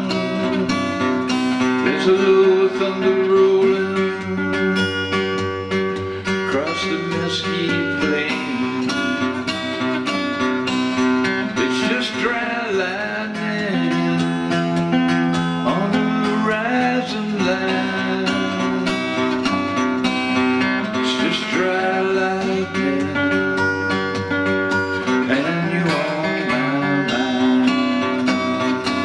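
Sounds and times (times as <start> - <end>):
man singing: 0.0 - 5.1, 6.3 - 9.6, 11.3 - 14.6, 15.6 - 19.8, 20.4 - 23.6, 25.1 - 29.0
acoustic guitar strumming: 0.0 - 29.0.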